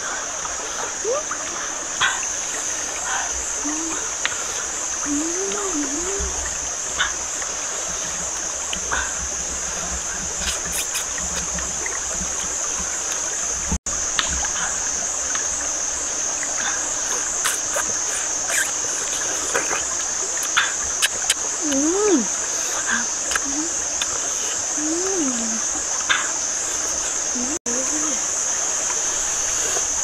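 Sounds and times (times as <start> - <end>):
stream running over rocks: 0.0 - 30.0
high-pitched insect drone: 0.8 - 30.0
small clicks of eating: 10.2 - 12.5, 17.1 - 22.0, 22.6 - 24.8.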